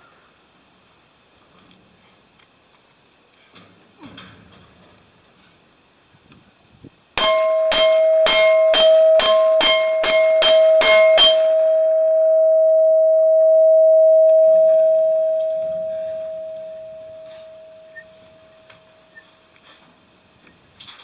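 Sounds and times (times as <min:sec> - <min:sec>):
bullets striking steel plate: 0:07.2 - 0:12.2
steel plate ringing: 0:07.2 - 0:19.2.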